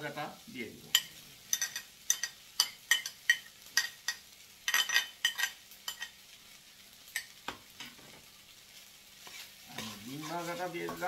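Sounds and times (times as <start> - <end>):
metal spoon clinking on plate: 1.0 - 6.1.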